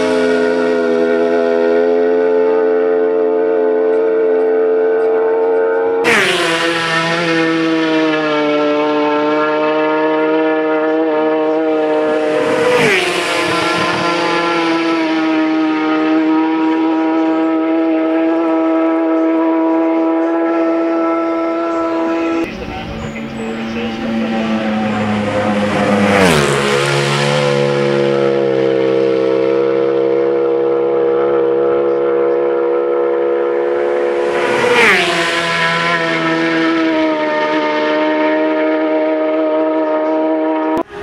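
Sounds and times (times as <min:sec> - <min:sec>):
racing motorcycles passing: 0:00.0 - 0:41.0.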